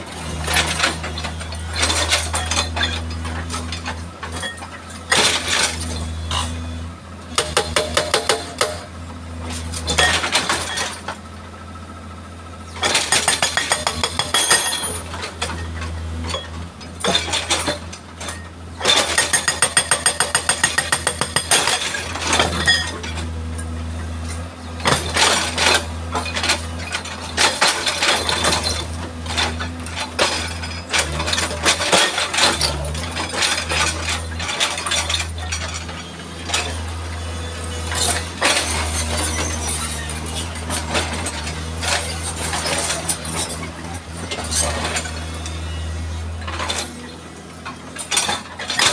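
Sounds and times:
diesel engine running: 0:00.0 - 0:48.9
hydraulic breaker hammering rock: 0:07.3 - 0:09.0, 0:12.7 - 0:23.7, 0:24.7 - 0:48.9.

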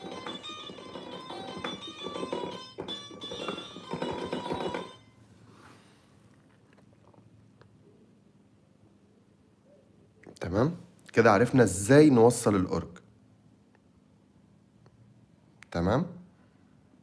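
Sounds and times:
faint room noise: 0:00.0 - 0:17.0.

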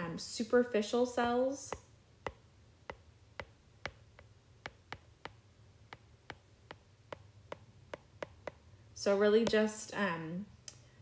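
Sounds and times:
stylus tapping on glass screen: 0:01.2 - 0:08.7.

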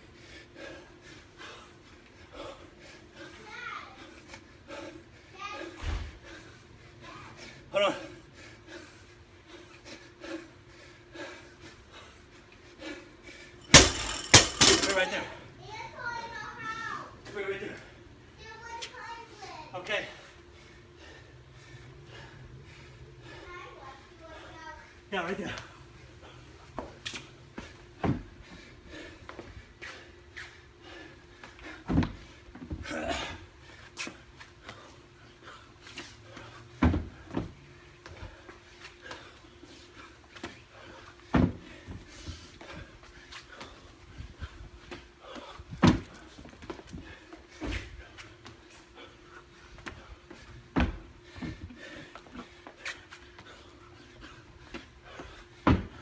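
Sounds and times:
person breathing hard: 0:00.0 - 0:14.9, 0:20.1 - 0:56.0
heavy thumps: 0:13.7 - 0:15.0.

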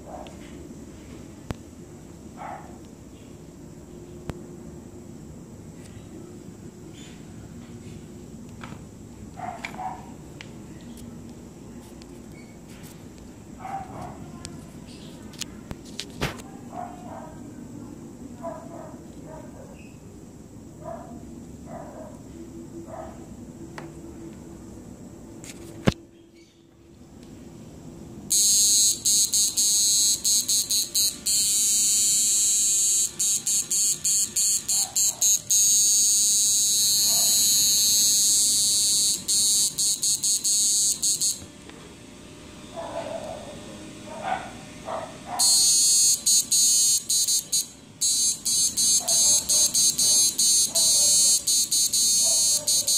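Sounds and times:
high-pitched electronic buzz: 0:28.3 - 0:41.5, 0:45.4 - 0:52.9.

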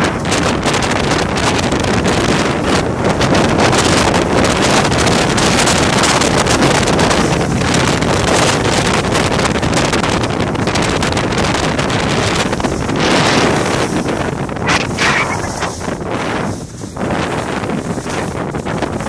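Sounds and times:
wind rushing over microphone: 0:00.0 - 0:19.0
skis hissing over snow: 0:14.6 - 0:16.8.

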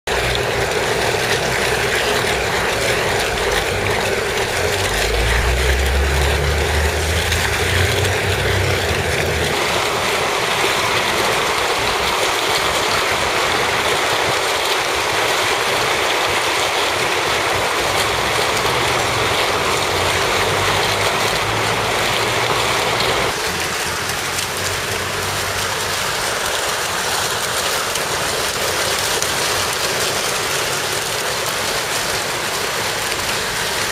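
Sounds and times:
fountain water splashing into pool: 0:00.0 - 0:33.9
low rumble: 0:01.0 - 0:10.4.

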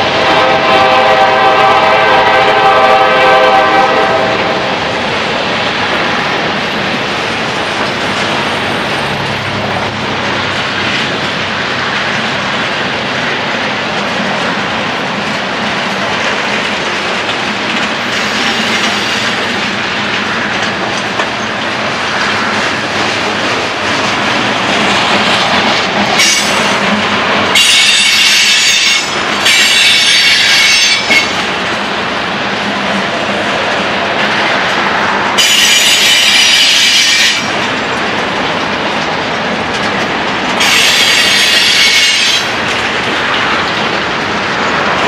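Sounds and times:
freight train wheels on rail: 0:00.0 - 0:45.0
high wheel squeal: 0:40.6 - 0:42.5.

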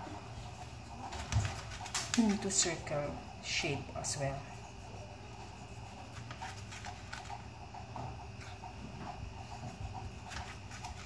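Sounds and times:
knife slicing tomato: 0:04.5 - 0:11.0.

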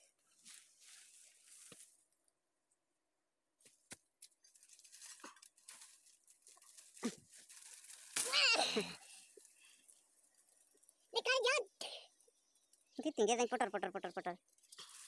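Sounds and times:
faint rustling: 0:00.3 - 0:02.1.

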